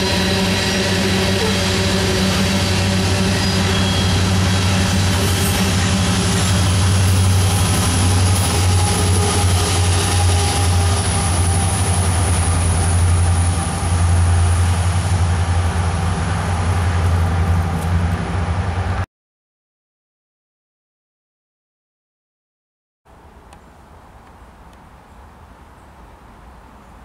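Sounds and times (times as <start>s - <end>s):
train cars rumbling over rails: 0.0s - 19.0s.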